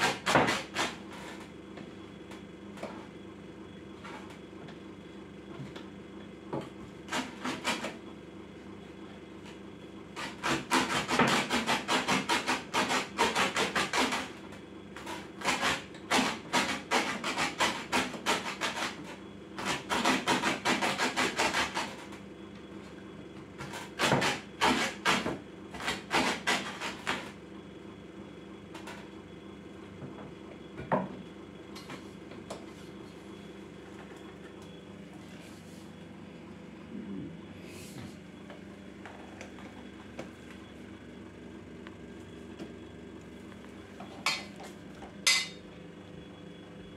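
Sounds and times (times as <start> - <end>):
hatchet chopping on wooden board: 0.0 - 1.0, 10.4 - 14.2, 23.6 - 27.2.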